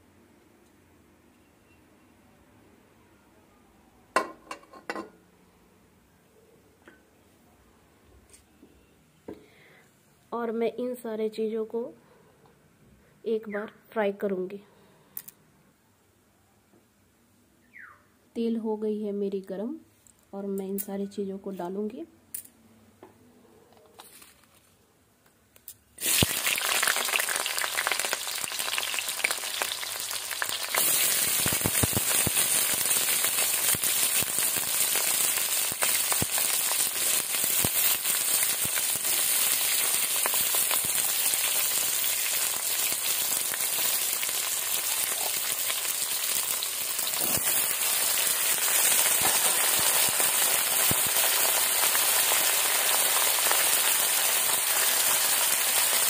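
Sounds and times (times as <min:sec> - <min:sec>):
oil crackling: 0:26.0 - 0:56.0
vegetables sizzling in oil: 0:26.0 - 0:56.0.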